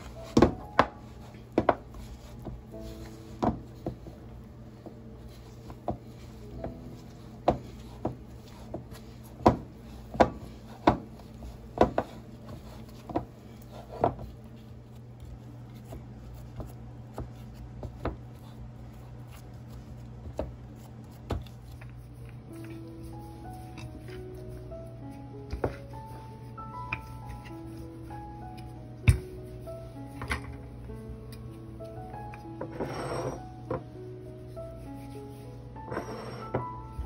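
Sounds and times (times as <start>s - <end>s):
dough kneaded in plastic bowl: 0.0s - 32.6s
steady low hum: 0.0s - 37.0s.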